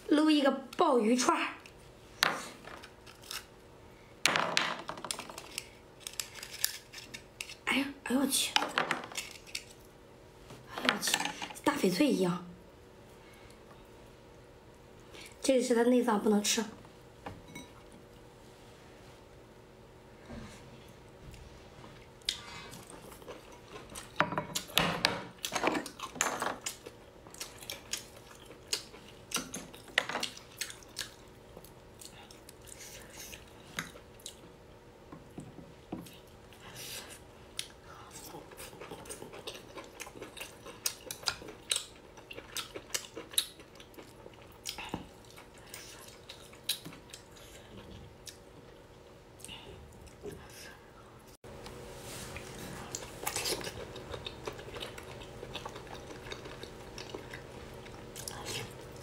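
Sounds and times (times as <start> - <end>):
wet chewing and biting: 37.6 - 47.5, 52.4 - 59.0.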